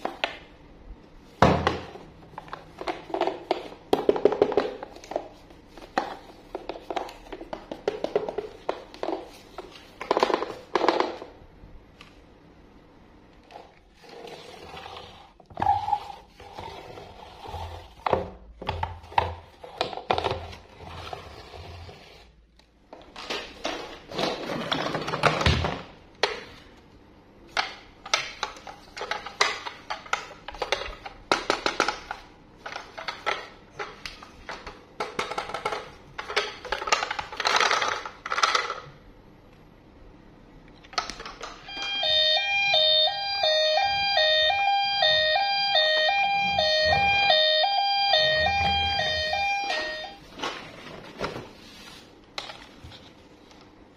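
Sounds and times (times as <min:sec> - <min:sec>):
toy wheels rolling on tabletop: 0:14.0 - 0:18.1
plastic toy clicks and knocks: 0:34.5 - 0:38.9.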